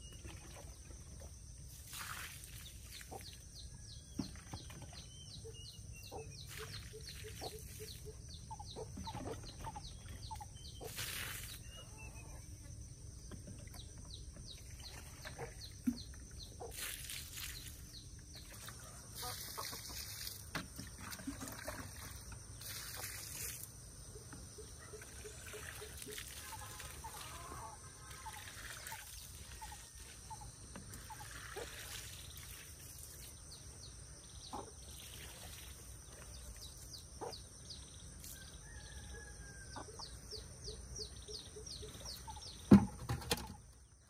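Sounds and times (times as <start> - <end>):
poultry clucking: 5.4 - 11.1, 18.6 - 20.4.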